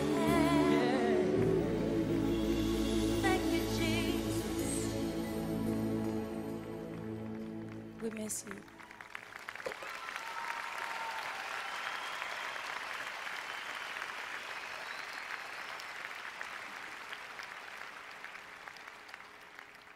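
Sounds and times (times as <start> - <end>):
audience applauding: 6.1 - 19.9.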